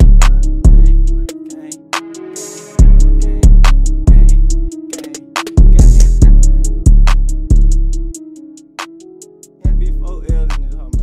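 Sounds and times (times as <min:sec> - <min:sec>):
deep bass drum hits: 0:00.0 - 0:01.1, 0:02.8 - 0:04.6, 0:05.6 - 0:08.0
hi-hats ticking: 0:00.0 - 0:11.0.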